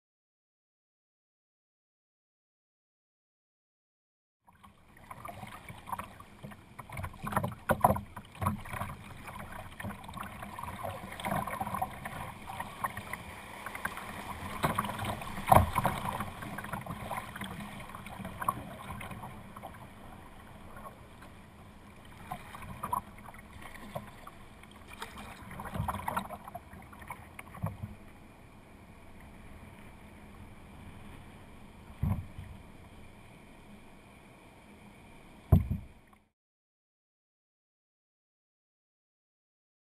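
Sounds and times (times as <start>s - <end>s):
paddle strokes: 4.5s - 28.2s
water rushing along kayak hull: 4.5s - 36.1s.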